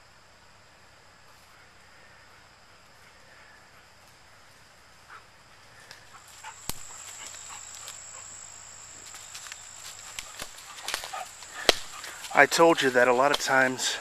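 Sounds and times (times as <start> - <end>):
steady high-pitched whine: 0.0 - 14.0
footsteps crunching through dry leaves: 6.2 - 14.0
twig snapping: 6.6 - 6.9, 9.4 - 12.4.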